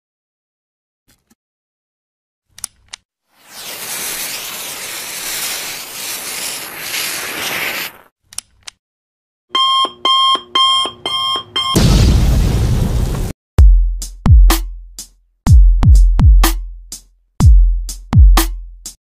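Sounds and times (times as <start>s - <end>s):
steady hiss: 3.4s - 8.0s.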